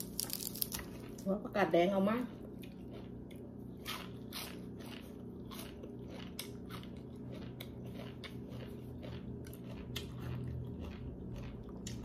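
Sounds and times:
crunching raw vegetables: 0.0s - 1.4s, 2.4s - 12.0s.

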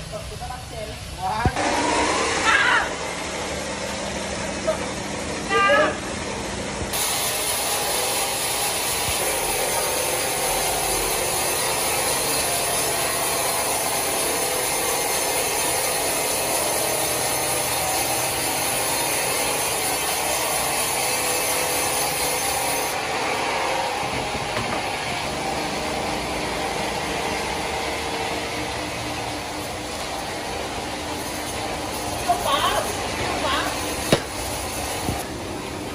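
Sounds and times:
saw drive running: 1.6s - 5.2s, 6.3s - 35.7s
band saw rasping through log: 6.9s - 35.4s.

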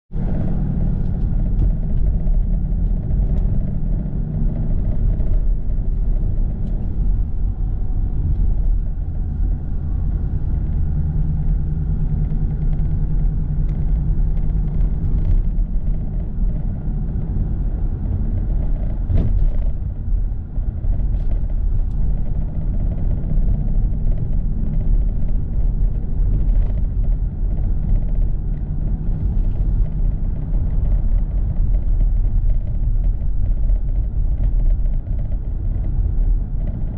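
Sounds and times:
car engine and road rumble: 0.1s - 36.9s.

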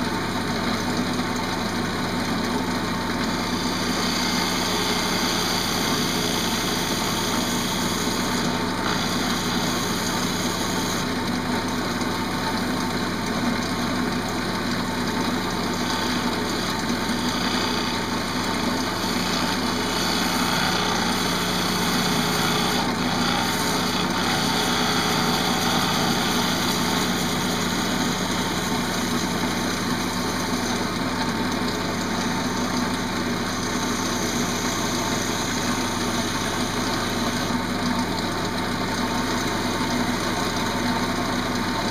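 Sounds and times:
lathe motor hum: 0.0s - 41.9s
gouge cutting wood hiss: 3.4s - 11.2s, 15.7s - 30.6s.

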